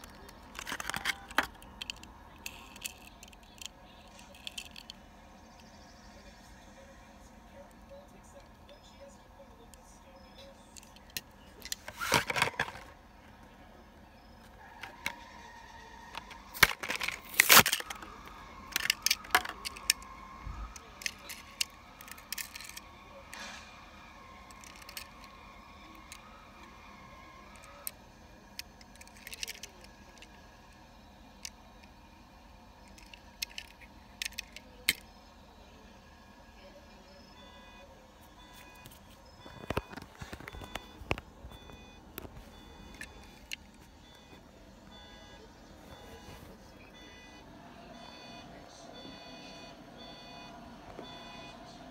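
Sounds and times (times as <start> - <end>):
toy cars clicking and rattling: 0.0 - 5.0, 10.6 - 13.0, 14.8 - 23.5, 24.4 - 30.7, 32.8 - 35.1
plastic packaging crackling: 16.5 - 18.0.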